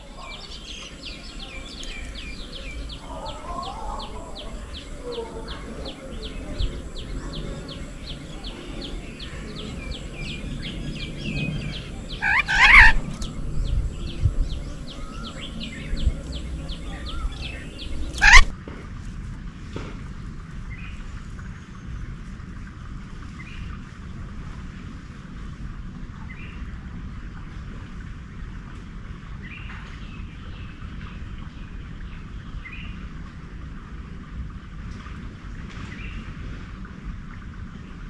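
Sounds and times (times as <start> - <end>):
loud harsh bird calls: 0.0 - 18.5.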